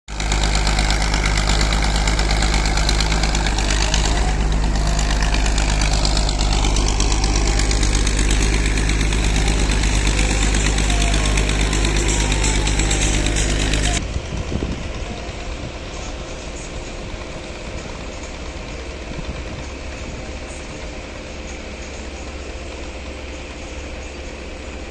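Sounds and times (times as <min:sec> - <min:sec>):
distant engine: 0:00.1 - 0:24.9
heavy diesel engine clattering: 0:00.1 - 0:24.9.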